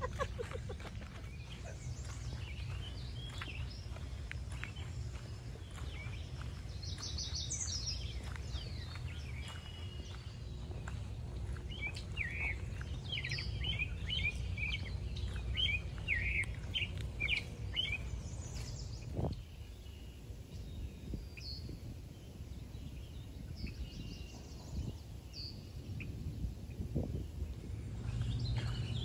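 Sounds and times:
songbirds chirping: 0.0 - 29.0
low rumble: 7.8 - 29.0.

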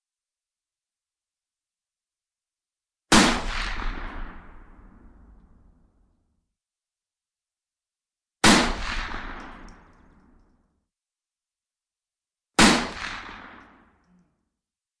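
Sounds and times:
rifle shots with rolling echo: 3.1 - 5.3, 8.4 - 10.2, 12.6 - 14.0.

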